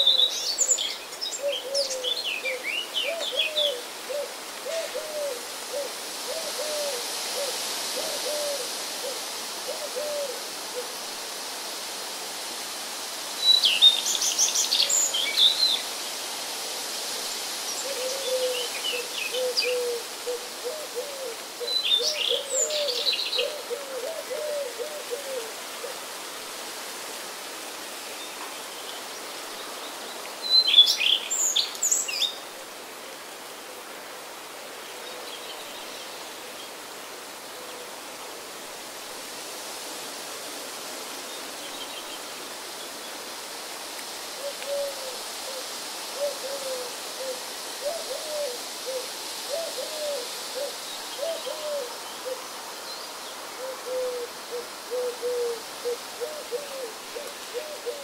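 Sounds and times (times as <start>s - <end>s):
steady hiss: 0.0s - 58.0s
owl hooting: 53.6s - 58.0s.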